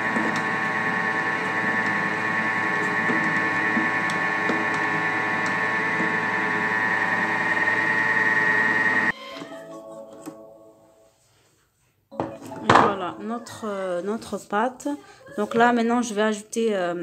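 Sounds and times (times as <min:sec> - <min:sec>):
food processor motor whine: 0:00.0 - 0:09.1.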